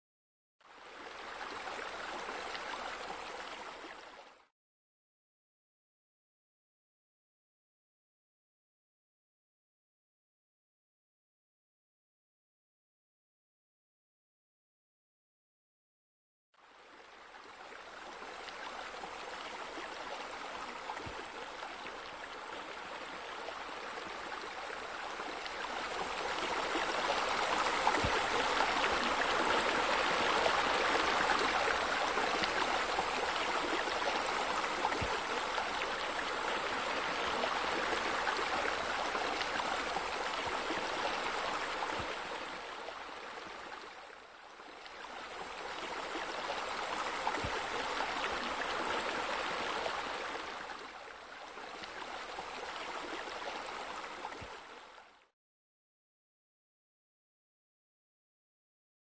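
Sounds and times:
flowing water splashing: 0.7 - 4.3, 16.8 - 55.2.

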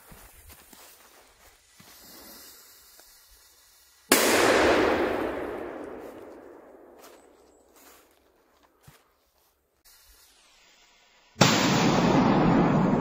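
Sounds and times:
firecracker crackling burst: 1.8 - 6.8, 9.9 - 13.0.

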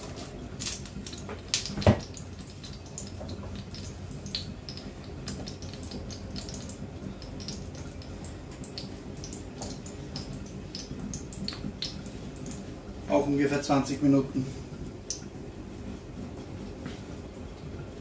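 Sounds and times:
low steady hum: 0.0 - 18.0
water boiling and bubbling: 0.0 - 18.0.

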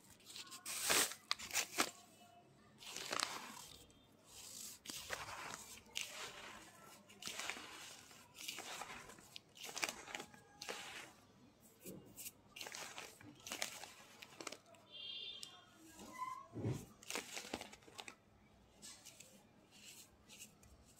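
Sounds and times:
hand kneading crunchy powder: 0.0 - 2.1, 2.8 - 15.4, 16.8 - 18.1.

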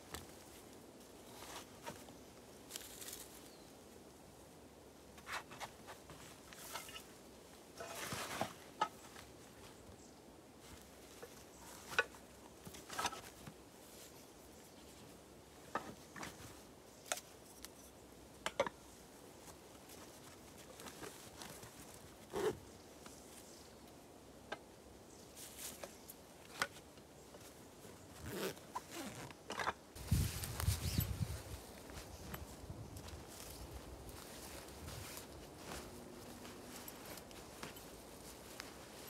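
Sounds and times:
backpack rustling: 19.9 - 22.6, 27.3 - 39.0
zipper: 22.3 - 22.6, 28.2 - 29.7.

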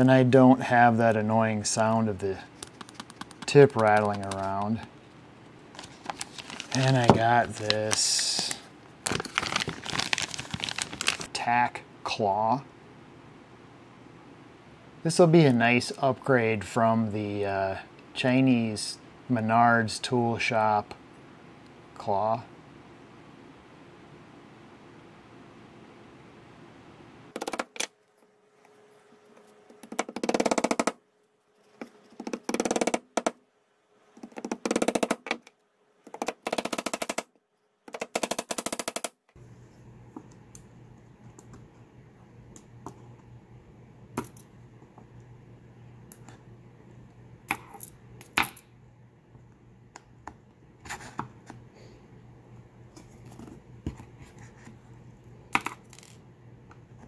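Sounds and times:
faint steady hum: 0.0 - 57.0
tacks popping free clicks: 2.6 - 4.8.

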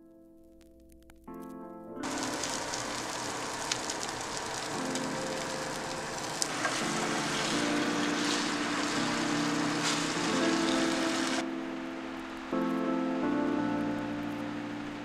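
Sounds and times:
background music: 0.0 - 15.0
sharp crackles: 0.0 - 15.0
eggs sizzling in a pan: 2.0 - 11.4.

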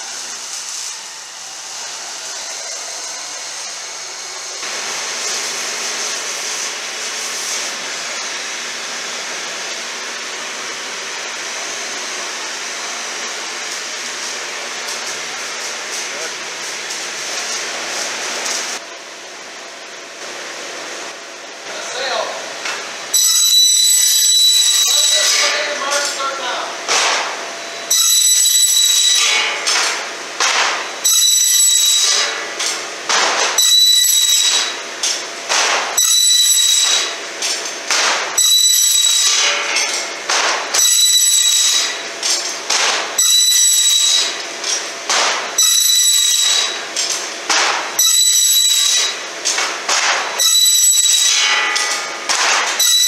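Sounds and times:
circular saw screeching through metal: 43.2 - 44.4, 50.4 - 52.2.

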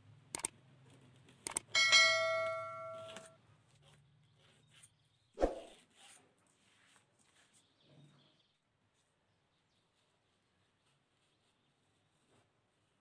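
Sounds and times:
quick clicks: 0.3 - 0.6, 1.4 - 1.7
metal ruler clanging and ringing: 1.8 - 3.4.

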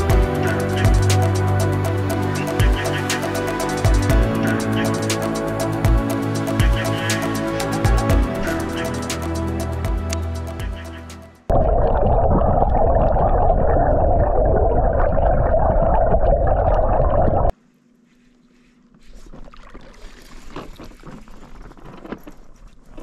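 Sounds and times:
muffled underwater water rush: 11.5 - 17.5.

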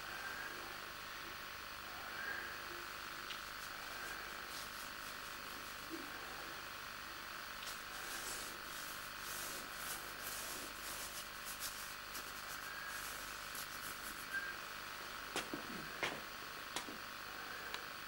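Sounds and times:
steady background hiss: 0.0 - 18.0
chalk scraping across canvas: 3.6 - 5.9, 7.6 - 14.5.

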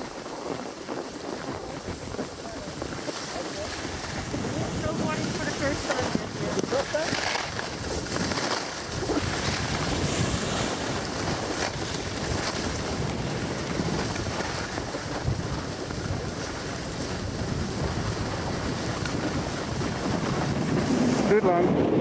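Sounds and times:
skis hissing over snow: 0.0 - 21.7
wind buffeting microphone: 0.0 - 22.0.

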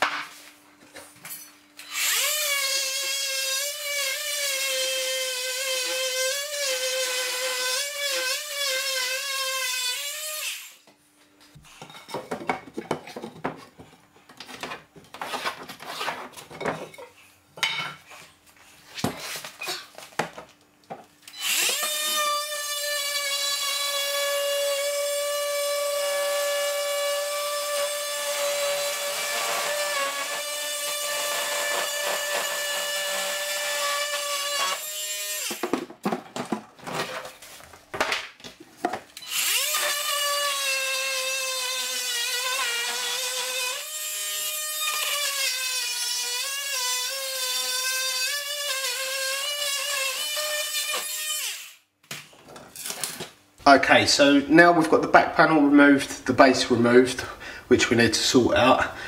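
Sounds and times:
oscillating multi-tool buzzing: 1.8 - 10.8, 21.3 - 35.6, 39.2 - 51.9.

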